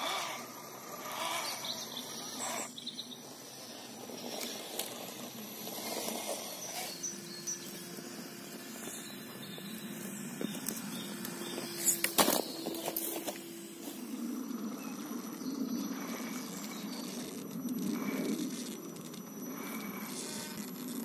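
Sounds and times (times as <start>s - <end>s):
insects humming: 0.0s - 21.0s
bird chirps: 1.2s - 3.3s, 6.5s - 7.9s.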